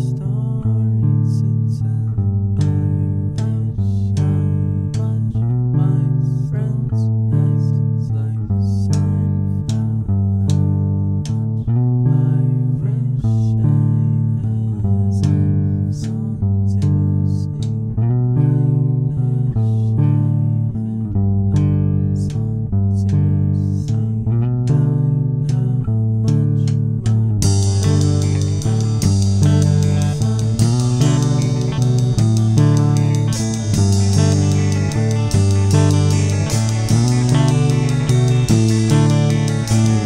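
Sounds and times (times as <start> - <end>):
guitar picked note patterns: 0.0 - 40.0
low bass line: 0.0 - 40.0
short sharp strikes: 27.4 - 40.0.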